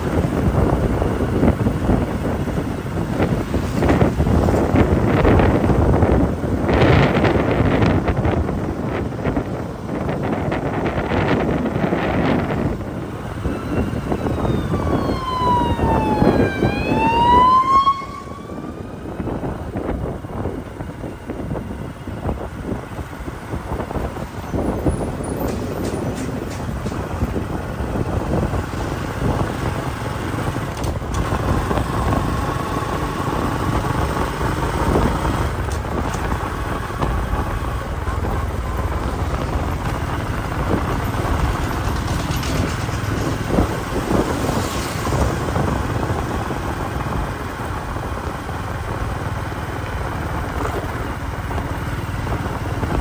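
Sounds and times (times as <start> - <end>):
passing engines: 0.0 - 53.0
wind rumbling: 0.0 - 53.0
wailing siren tone: 13.4 - 19.5.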